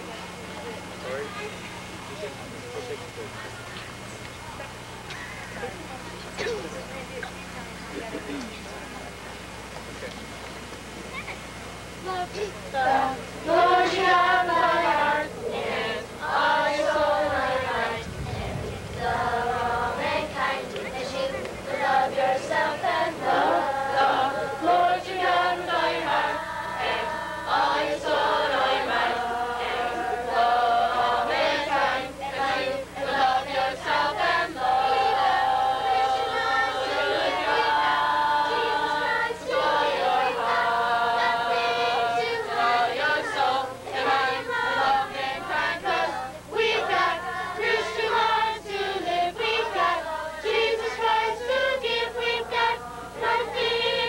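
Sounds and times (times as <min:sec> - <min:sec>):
children singing in chorus: 0:12.0 - 0:54.0.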